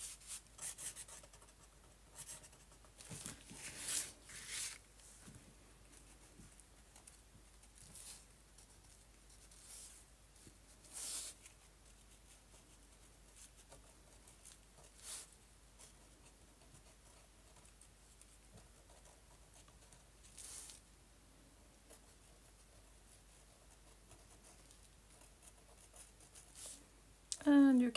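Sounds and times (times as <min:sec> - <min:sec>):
pen scratching on paper: 0:00.0 - 0:02.8, 0:10.8 - 0:20.7, 0:21.9 - 0:26.8.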